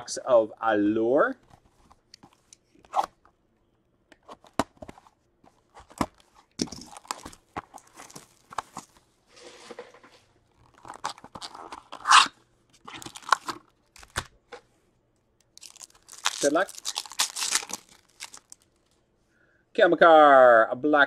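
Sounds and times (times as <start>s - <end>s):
plastic wrap tearing and crinkling: 5.8s - 9.0s, 10.5s - 14.3s, 15.6s - 19.0s.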